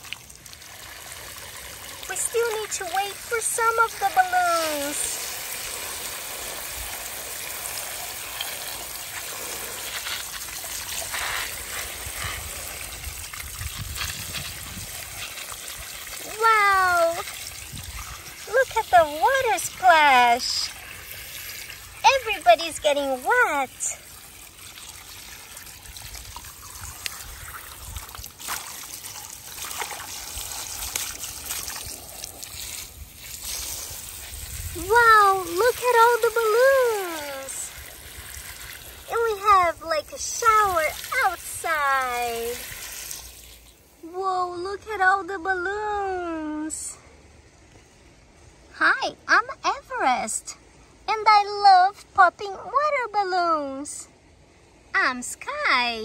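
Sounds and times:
water running from garden hose: 0.0 - 44.2.

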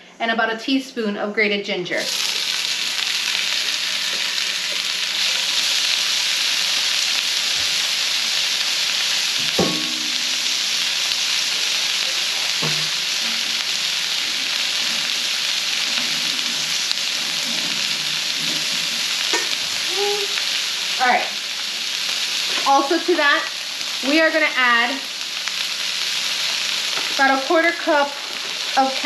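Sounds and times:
vegetables sizzling in hot oil: 2.0 - 29.0
knock: 9.4 - 10.3, 12.6 - 12.9
ringing metal clank: 9.4 - 11.0.

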